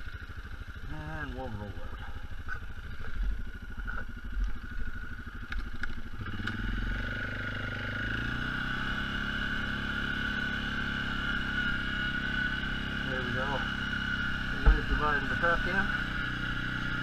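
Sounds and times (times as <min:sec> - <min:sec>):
quad bike engine: 0:00.0 - 0:17.0
high whine: 0:14.4 - 0:16.4
thumps on microphone: 0:14.5 - 0:15.4.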